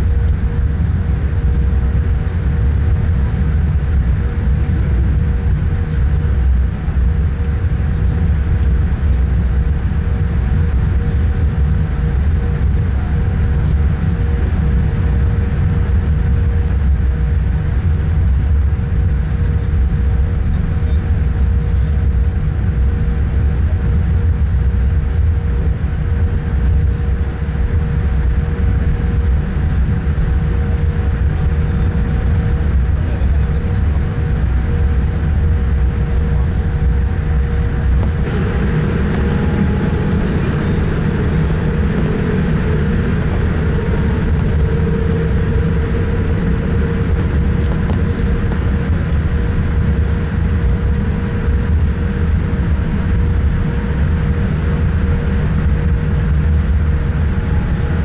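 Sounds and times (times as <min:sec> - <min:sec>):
airliner low rumble: 0:00.0 - 0:58.0
faint steady hum: 0:21.6 - 0:58.0.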